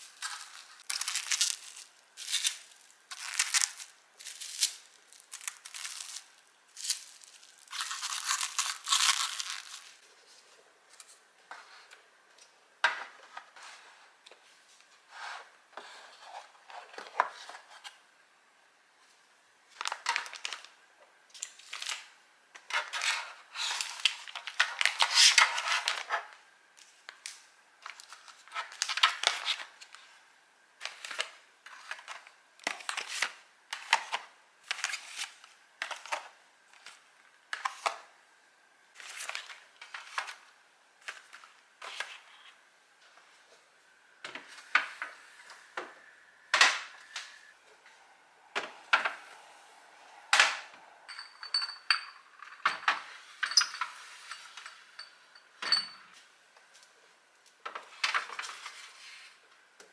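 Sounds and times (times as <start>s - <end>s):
packaging crinkling: 0.0s - 10.0s.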